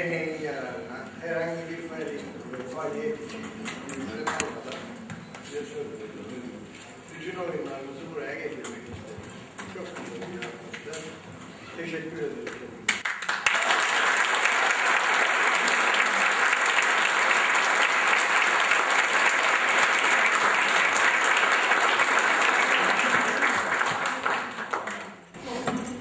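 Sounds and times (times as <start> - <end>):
audience applauding: 12.9 - 25.3.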